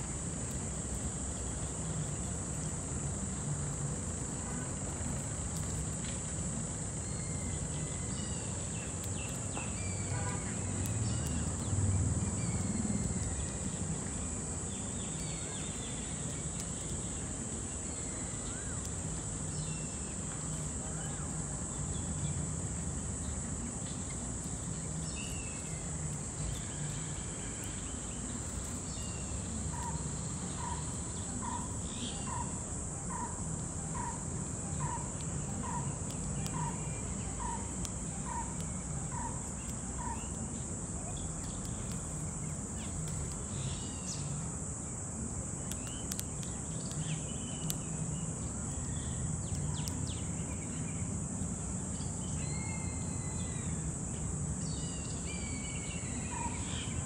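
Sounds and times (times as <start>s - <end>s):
birds chirping: 23.3s - 44.5s
high-pitched insect drone: 51.9s - 57.0s.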